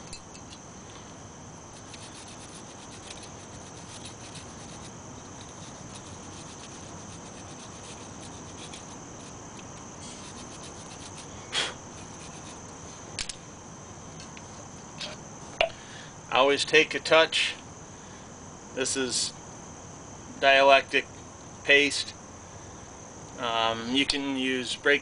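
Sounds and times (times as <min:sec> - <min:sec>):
wire brush scratching metal: 0:01.7 - 0:11.3, 0:11.9 - 0:12.7
sharp scraping sound: 0:10.0 - 0:12.6.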